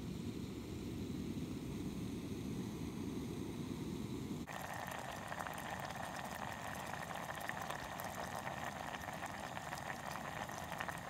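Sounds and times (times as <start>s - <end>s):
food bubbling in a pot: 4.5s - 11.0s.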